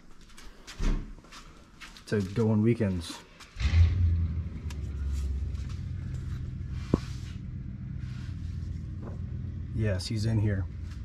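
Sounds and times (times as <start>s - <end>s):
car engine idling: 3.6s - 11.0s.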